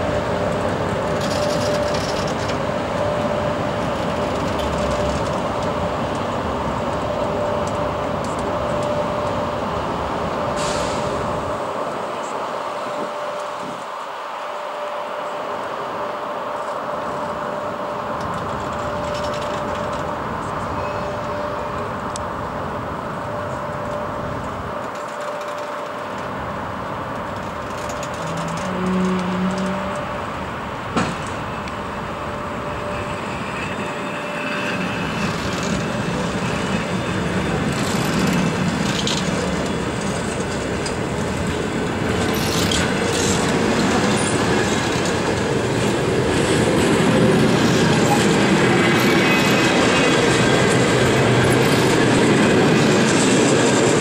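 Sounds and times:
train wheels clattering on rails: 0.0 - 9.4, 18.1 - 22.3, 23.5 - 54.0
high wheel squeals: 20.5 - 22.0, 31.4 - 39.5, 47.3 - 53.4.

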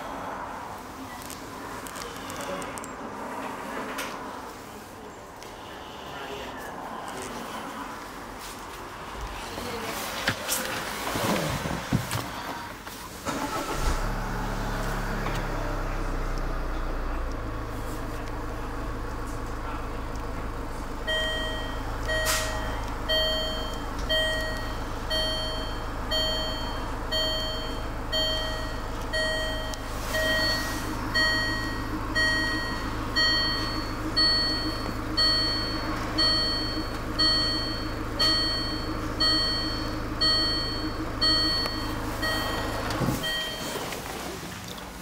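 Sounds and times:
car engine idling: 12.5 - 45.0
dashboard warning chime: 21.0 - 44.0.

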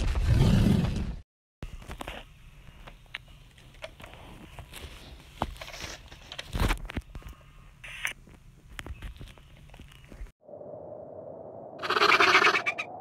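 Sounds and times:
cracks scrapes and knocks: 3.7 - 7.3
low rumble: 10.4 - 13.0.

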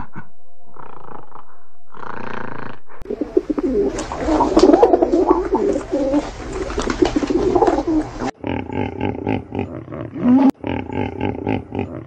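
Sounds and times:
pigeons cooing: 3.0 - 8.4.

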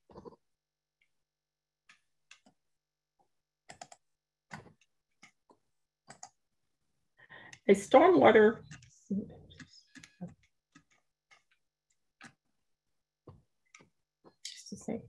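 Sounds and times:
computer keyboard clicks: 3.7 - 5.4, 6.1 - 6.4.

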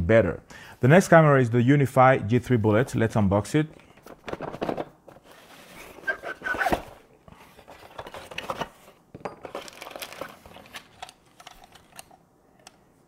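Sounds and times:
packaging tearing and crinkling: 9.5 - 12.1.

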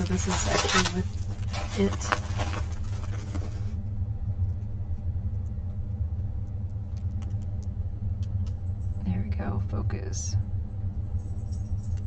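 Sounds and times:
plastic film crinkling: 0.0 - 3.8
low rumble: 0.0 - 12.0.

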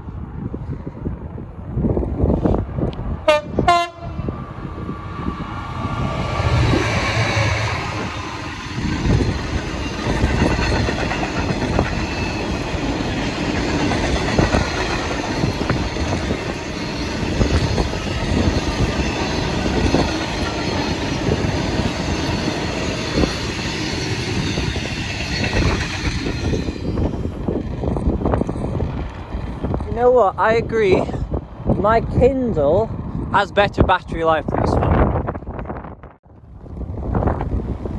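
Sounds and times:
freight train rumbling: 0.0 - 37.9
wheels clattering over rail joints: 6.4 - 29.9.

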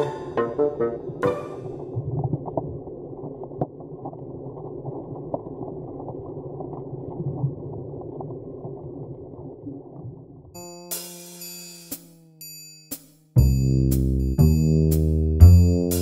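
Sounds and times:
muffled underwater rush: 0.0 - 10.4.

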